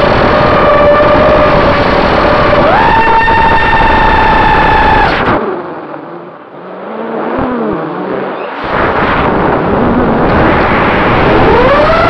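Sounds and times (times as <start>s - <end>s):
quadcopter motors whining: 0.0s - 5.4s, 11.2s - 12.0s
rush of air: 8.4s - 12.0s.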